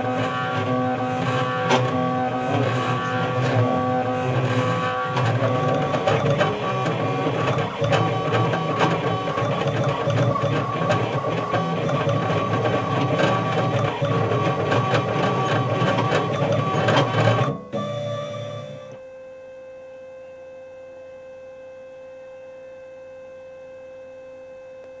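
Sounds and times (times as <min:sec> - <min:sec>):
rapid clicking and chatter: 0:00.0 - 0:17.5
engraving machine motor whine: 0:00.0 - 0:19.0.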